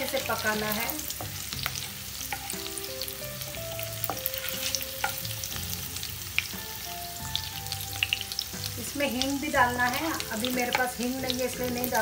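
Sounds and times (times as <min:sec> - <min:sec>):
spices sizzling in hot oil: 0:00.0 - 0:12.0
wooden spatula stirring: 0:04.0 - 0:05.4.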